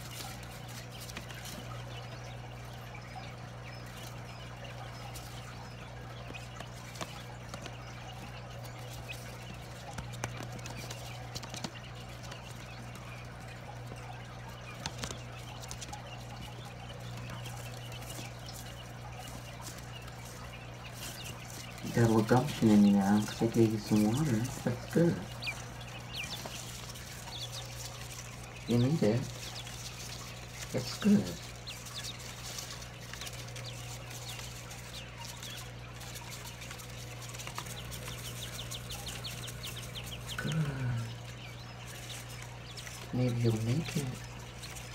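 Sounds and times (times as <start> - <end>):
small taps and scratches: 0.0 - 2.2, 6.1 - 22.6
chicks peeping: 0.0 - 44.9
steady low hum: 0.0 - 44.9.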